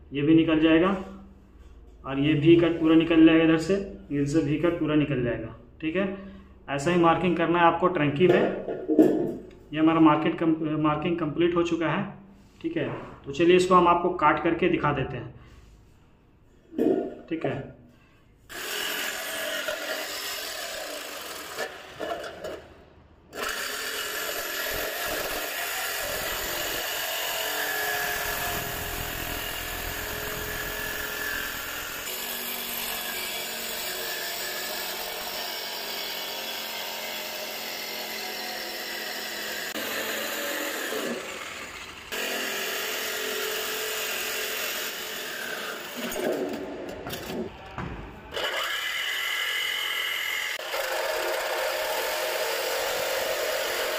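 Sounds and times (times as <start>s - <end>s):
jigsaw cutting sheet metal: 18.5s - 47.6s, 48.3s - 53.9s.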